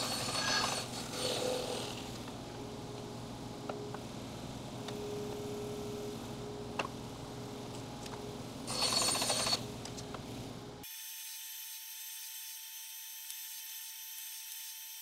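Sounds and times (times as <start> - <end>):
bandsaw cutting wooden board: 0.0 - 2.2, 8.7 - 9.6
bandsaw running: 0.0 - 2.2, 8.7 - 9.6
spindle sander whirring: 0.0 - 2.4.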